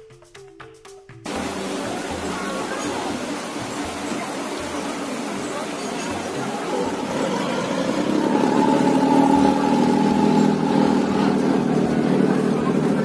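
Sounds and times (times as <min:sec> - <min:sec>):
boat engine running: 0:01.3 - 0:13.0.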